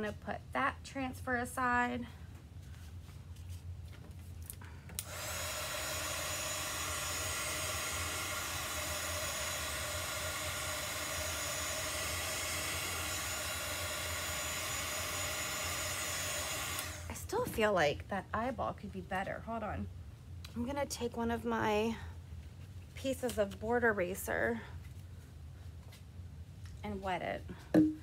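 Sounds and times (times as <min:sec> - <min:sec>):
blow dryer running: 0:05.0 - 0:17.6.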